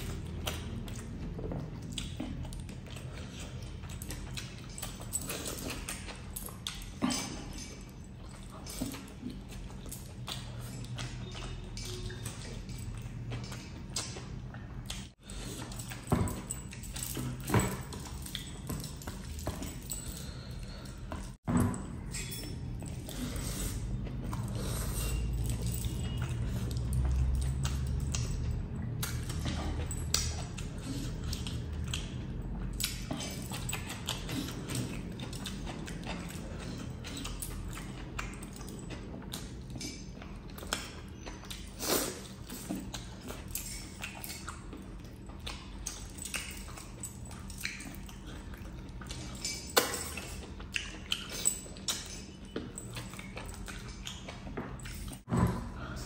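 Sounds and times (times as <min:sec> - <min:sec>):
close chewing: 0:00.0 - 0:56.0
wet clicks and squelches: 0:25.4 - 0:41.8.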